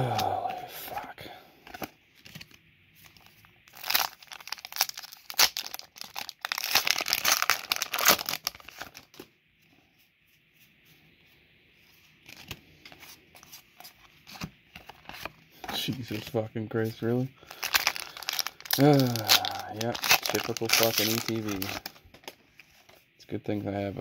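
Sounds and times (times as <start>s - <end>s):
foil wrapper tearing and crinkling: 3.6s - 9.2s, 17.4s - 22.4s.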